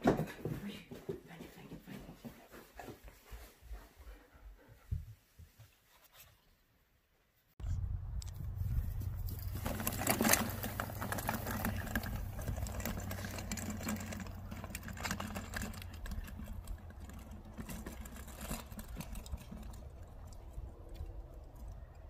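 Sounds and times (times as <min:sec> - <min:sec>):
wagon rattling over grass: 0:08.6 - 0:20.8.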